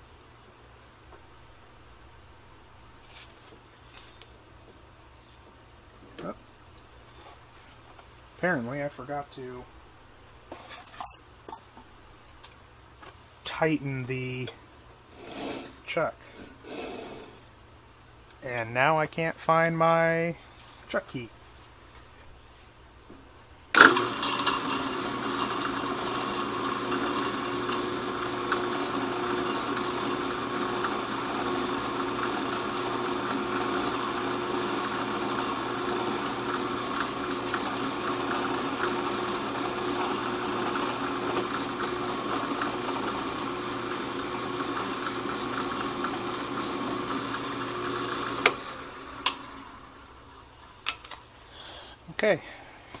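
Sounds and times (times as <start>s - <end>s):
drill press whining: 23.8s - 50.1s.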